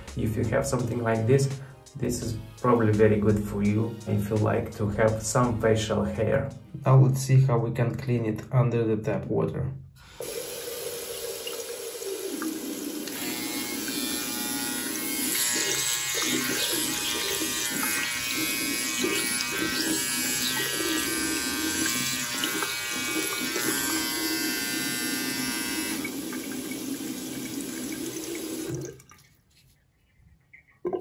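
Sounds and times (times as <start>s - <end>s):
tap water running: 10.0s - 29.4s
trimmer motor buzzing: 13.0s - 26.3s.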